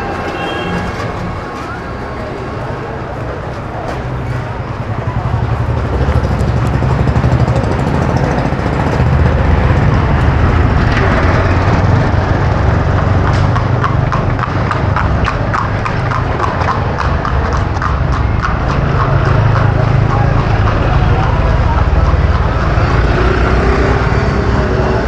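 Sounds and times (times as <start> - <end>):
low rumble of street noise: 0.0 - 25.0
horse hooves on pavement: 5.2 - 23.7.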